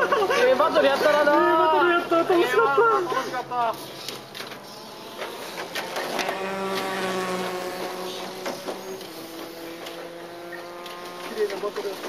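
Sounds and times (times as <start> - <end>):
electric motors high whine: 1.1 - 12.0.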